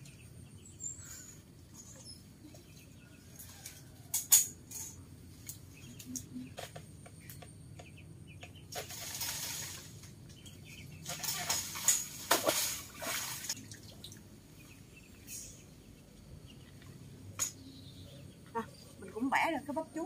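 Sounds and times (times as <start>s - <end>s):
leaves rustling and crackling: 8.7s - 13.7s.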